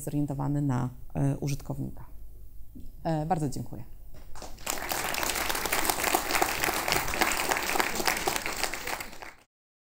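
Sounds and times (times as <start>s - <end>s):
audience applauding: 4.4s - 9.5s.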